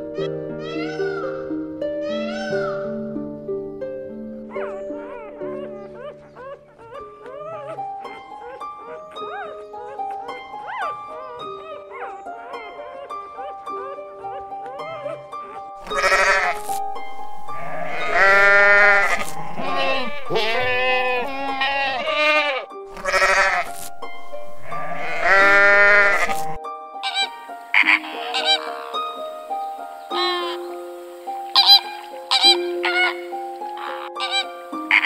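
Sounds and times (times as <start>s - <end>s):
soft background music: 0.0s - 35.0s
farm animal bleating: 0.6s - 1.4s, 2.0s - 2.9s, 14.8s - 16.8s, 17.4s - 23.8s, 24.4s - 29.2s, 30.1s - 30.8s, 31.5s - 35.0s.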